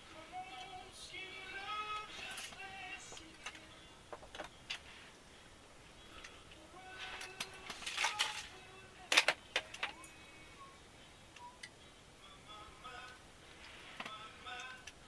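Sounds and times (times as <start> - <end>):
plastic tackle clicking and rattling: 7.2 - 8.5
bag crinkling: 7.2 - 8.6.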